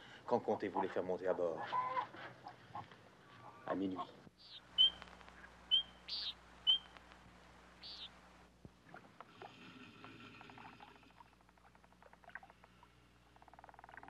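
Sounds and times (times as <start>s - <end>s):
faint low hum: 0.0s - 14.0s
bird chirps: 4.4s - 7.0s, 7.8s - 8.1s.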